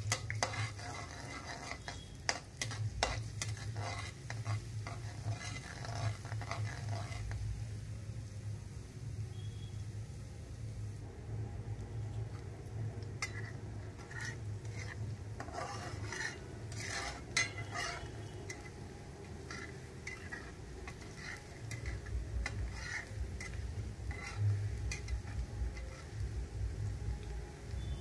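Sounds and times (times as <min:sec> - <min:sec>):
spatula scraping metal pan: 0:00.0 - 0:07.5, 0:13.0 - 0:28.0
onion sizzling in oil: 0:00.0 - 0:28.0
steady low hum: 0:10.8 - 0:28.0.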